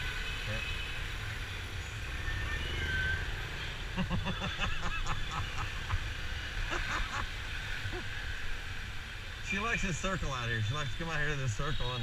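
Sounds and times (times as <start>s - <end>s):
motorbike engine and road rumble: 0.0s - 9.6s.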